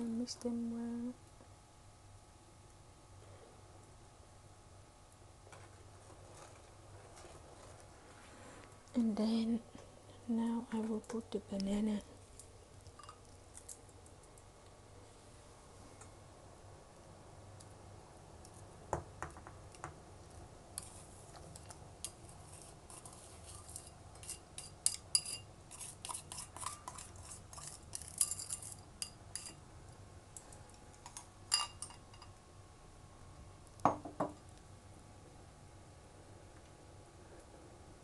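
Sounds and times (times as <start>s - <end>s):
chopsticks clinking on ceramic bowl: 23.7s - 29.6s.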